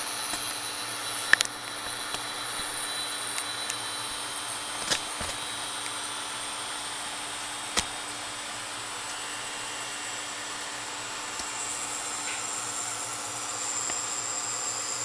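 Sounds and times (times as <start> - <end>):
cooling fan whirring: 0.0 - 15.0.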